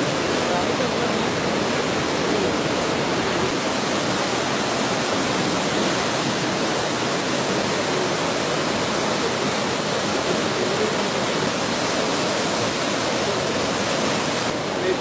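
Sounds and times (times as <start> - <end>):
river rushing over weir: 0.0 - 15.0.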